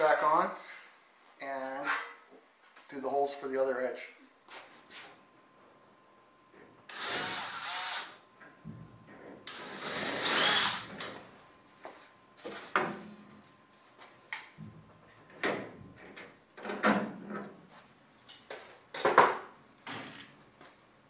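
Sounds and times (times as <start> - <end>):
cordless drill drilling metal: 6.9 - 8.2, 9.5 - 10.9.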